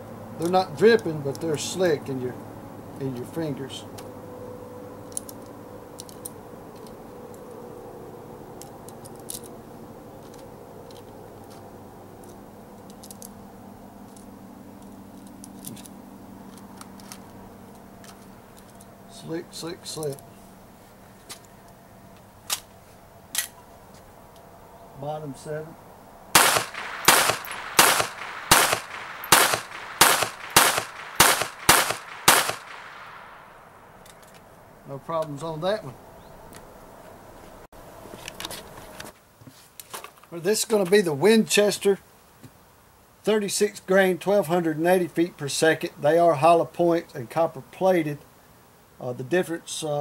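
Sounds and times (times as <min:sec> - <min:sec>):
steady background hum: 0:00.0 - 0:39.1
rounds clicking into magazine: 0:26.4 - 0:33.2
pistol shots: 0:26.4 - 0:33.8.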